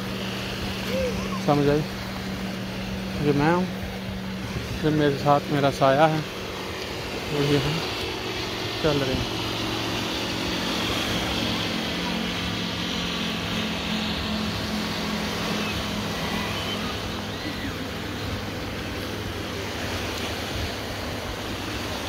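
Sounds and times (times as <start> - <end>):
small waves washing onto sand: 0.0 - 22.0
steady low hum: 0.0 - 22.0
wind on microphone: 3.0 - 5.5.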